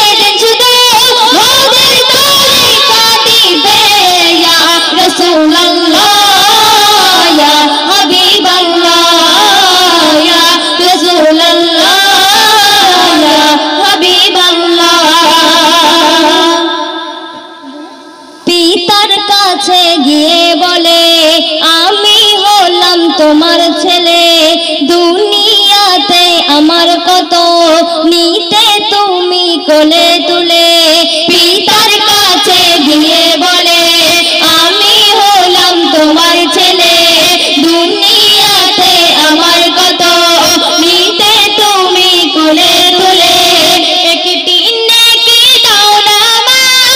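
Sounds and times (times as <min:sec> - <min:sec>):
women singing into microphones: 0:00.0 - 0:46.9.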